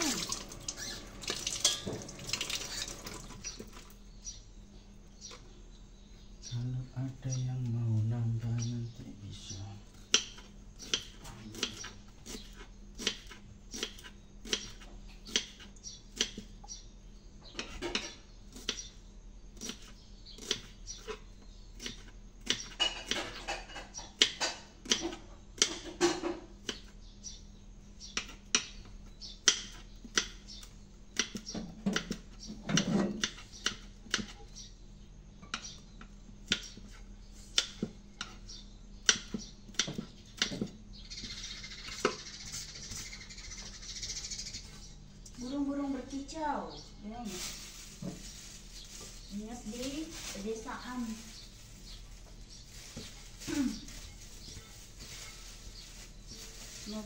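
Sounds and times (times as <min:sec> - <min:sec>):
metal utensil clinking on pan: 0:01.5 - 0:02.0.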